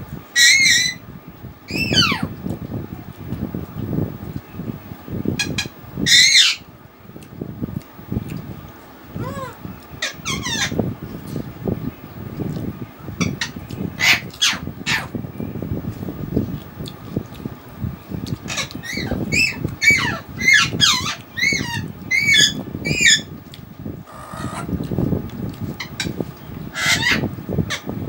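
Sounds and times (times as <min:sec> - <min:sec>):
bird squawking: 0:09.2 - 0:10.8, 0:13.2 - 0:15.1, 0:26.7 - 0:27.8.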